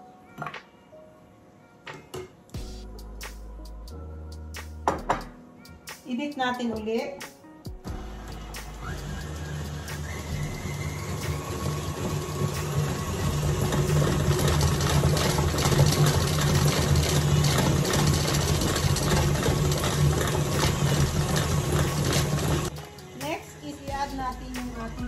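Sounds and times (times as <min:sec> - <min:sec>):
stand mixer motor hum: 0:07.9 - 0:22.8.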